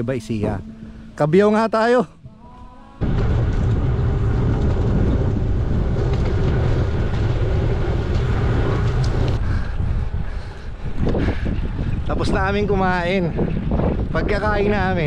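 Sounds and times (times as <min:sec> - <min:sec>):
bicycle road noise: 0:02.6 - 0:15.0
wind buffeting microphone: 0:03.0 - 0:15.0.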